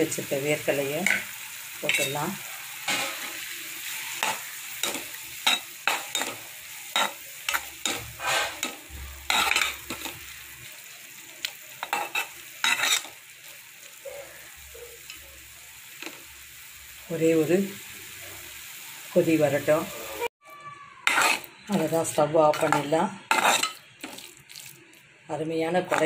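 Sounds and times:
food sizzling: 0:00.0 - 0:26.0
spatula scraping a pan: 0:01.9 - 0:10.3, 0:11.8 - 0:13.2, 0:21.0 - 0:24.2, 0:25.8 - 0:26.0.

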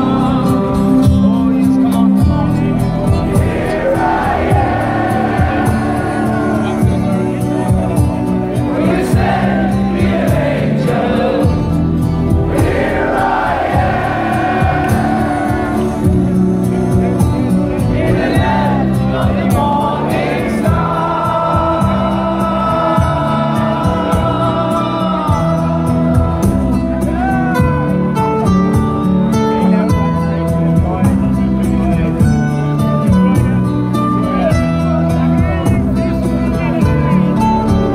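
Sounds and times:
lead singer singing: 0:00.0 - 0:02.2, 0:03.0 - 0:28.0
rock band playing live: 0:00.0 - 0:37.9
crowd singing along: 0:02.6 - 0:28.1.

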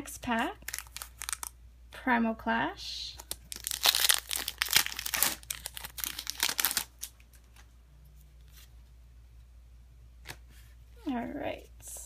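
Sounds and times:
foil wrapper tearing and crinkling: 0:00.6 - 0:01.5, 0:03.2 - 0:07.2.

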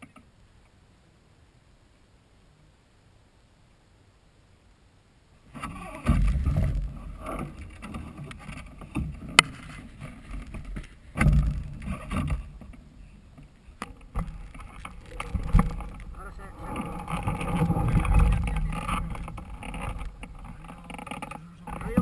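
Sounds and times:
wind buffeting microphone: 0:14.1 - 0:22.0.

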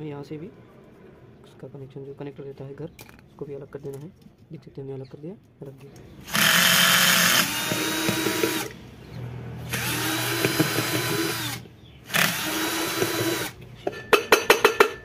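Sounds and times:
cordless drill whining: 0:06.2 - 0:08.8, 0:09.7 - 0:13.6.

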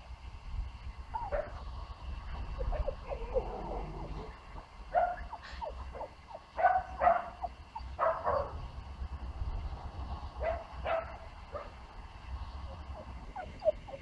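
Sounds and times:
puppy yapping: 0:05.0 - 0:08.5, 0:12.9 - 0:14.0.

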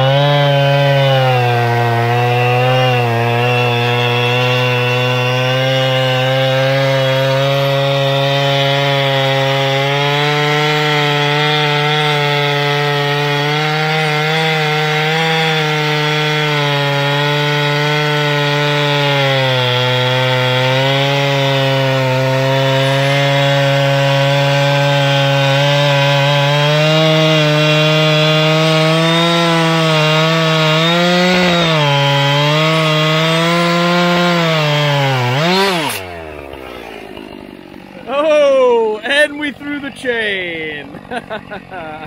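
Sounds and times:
chainsaw cutting through log: 0:00.0 - 0:42.0.

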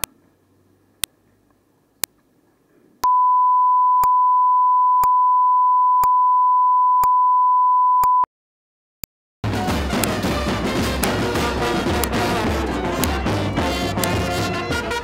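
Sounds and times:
steady mid-pitched test tone beep: 0:03.0 - 0:08.3.

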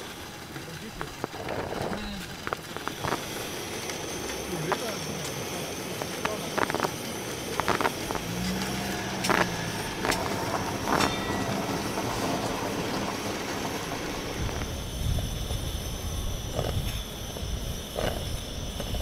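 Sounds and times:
deep rumble: 0:00.0 - 0:19.0
gas burner rushing: 0:00.0 - 0:19.0
sharp clicks: 0:00.7 - 0:10.3.

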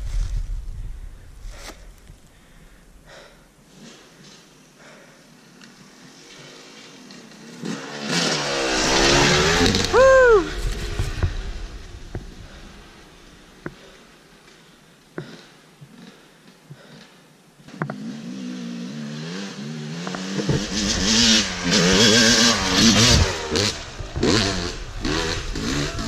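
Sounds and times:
dirt bike engine revving: 0:06.0 - 0:14.1, 0:17.8 - 0:26.0.

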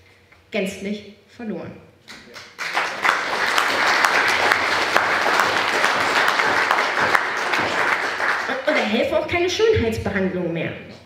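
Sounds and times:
audience applauding: 0:02.3 - 0:08.9.

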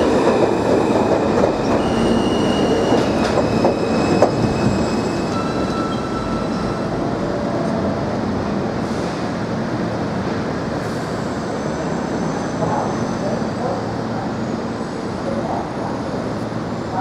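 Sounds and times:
train wheels rumbling on rails: 0:00.0 - 0:17.0
high wheel squeals: 0:00.6 - 0:07.0.

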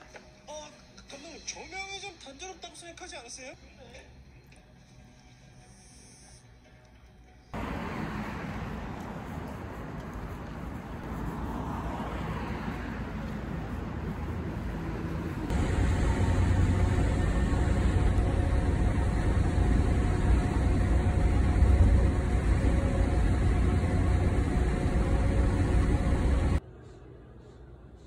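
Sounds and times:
bus rumble from inside: 0:07.5 - 0:28.0
passing traffic: 0:07.6 - 0:26.6.

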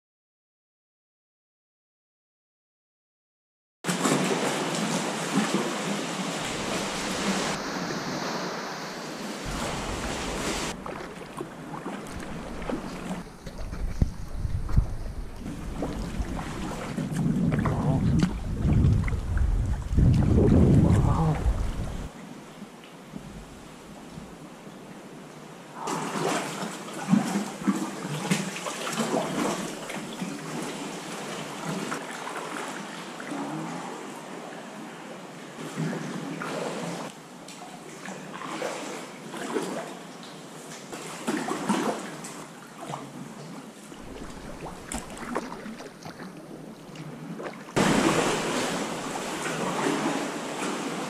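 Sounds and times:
water washing around kayak: 0:03.9 - 0:22.2, 0:25.8 - 0:37.1, 0:38.0 - 0:51.0
water sloshing against rock: 0:09.4 - 0:22.1, 0:43.9 - 0:51.0.

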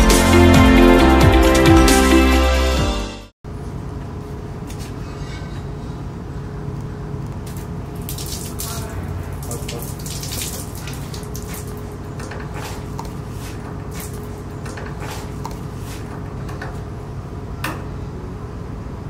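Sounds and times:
water dripping and spattering: 0:07.4 - 0:16.1.

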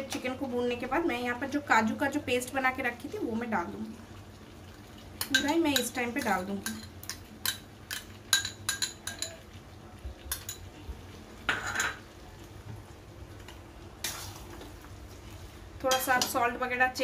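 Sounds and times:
metal spoon clinking on pan: 0:05.2 - 0:09.4, 0:10.3 - 0:10.7, 0:15.9 - 0:16.4
spoon scraping in pan: 0:13.4 - 0:16.5.

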